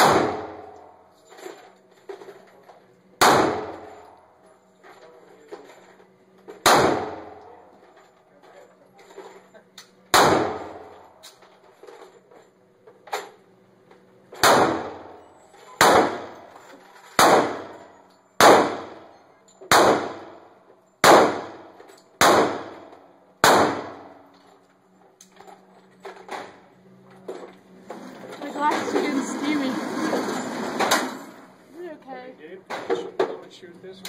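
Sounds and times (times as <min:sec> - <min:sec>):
pistol shots with echo: 0:00.0 - 0:01.0, 0:03.2 - 0:04.0, 0:06.6 - 0:07.5, 0:10.1 - 0:11.0, 0:14.4 - 0:15.2, 0:15.8 - 0:16.4, 0:17.2 - 0:17.8, 0:18.4 - 0:19.0, 0:19.7 - 0:20.4, 0:21.0 - 0:24.2.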